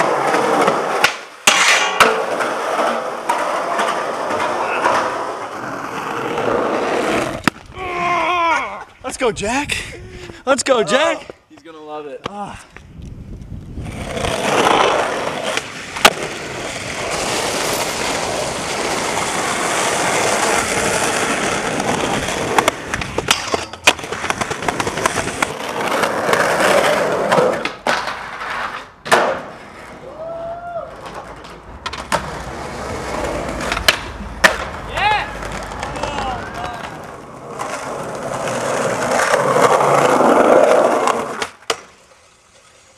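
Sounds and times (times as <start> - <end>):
skateboard tail pops: 0.0 - 5.1, 7.3 - 7.8, 14.6 - 16.4, 27.3 - 29.6, 33.5 - 37.0, 41.0 - 42.0
skateboard trucks grinding on metal: 0.0 - 7.5, 13.8 - 30.1, 30.9 - 42.9
skateboard landings: 0.0 - 7.8, 13.8 - 42.9
skateboard wheels rolling on asphalt: 0.0 - 42.9.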